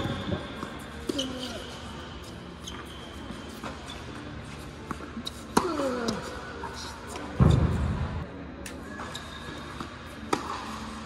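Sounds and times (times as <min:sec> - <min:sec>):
sneaker squeaks on court: 0:00.0 - 0:01.9, 0:02.6 - 0:04.3.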